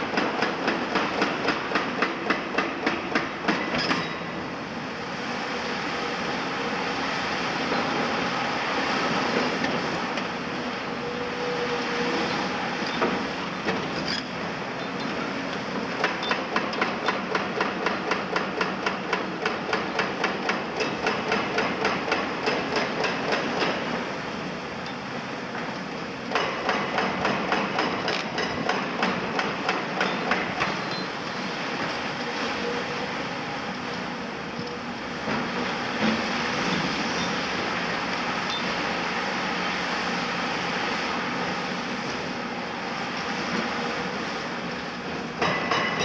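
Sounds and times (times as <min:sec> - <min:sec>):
excavator engines running: 0:04.3 - 0:46.0
hydraulic breaker hammering concrete: 0:16.0 - 0:23.9, 0:26.3 - 0:30.8.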